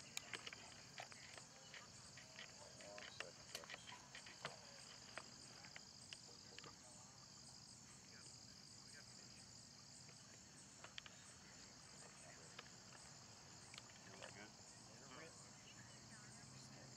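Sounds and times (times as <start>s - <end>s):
light clicks and ticks: 0.0s - 6.8s
crickets chirping: 0.0s - 16.9s.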